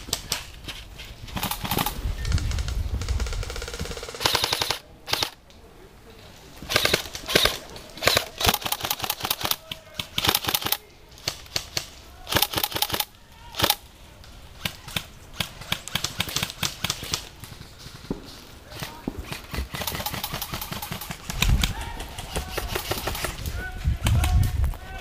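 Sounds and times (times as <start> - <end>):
airsoft rifles firing: 1.3 - 5.4, 6.6 - 13.9, 14.6 - 24.4.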